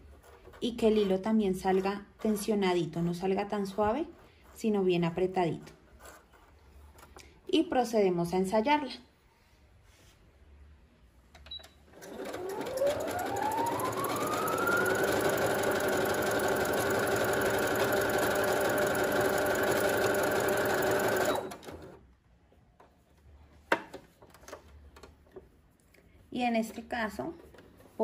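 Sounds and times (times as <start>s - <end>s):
sewing machine stitching: 12.0s - 22.0s.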